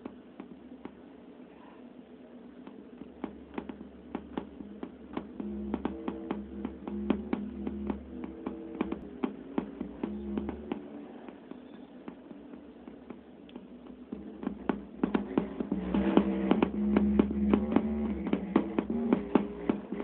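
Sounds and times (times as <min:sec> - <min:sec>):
low hum: 0:03.0 - 0:20.0
synthesizer short notes: 0:04.6 - 0:09.0, 0:14.2 - 0:20.0.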